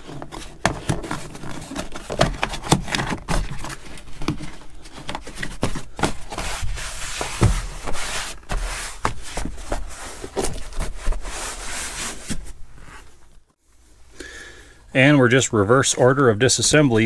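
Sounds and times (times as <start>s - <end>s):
carpet rustling and scraping: 0.0s - 13.6s.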